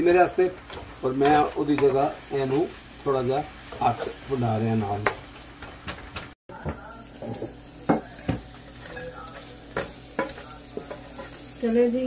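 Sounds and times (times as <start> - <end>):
greens sizzling in pan: 0.0 - 5.2, 6.5 - 12.0
spoon stirring and scraping: 8.3 - 11.6.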